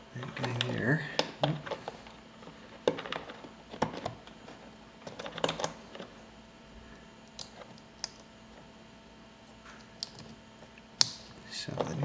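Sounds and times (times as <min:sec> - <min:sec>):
plastic clicks and rattles: 0:02.8 - 0:04.4, 0:05.0 - 0:06.1.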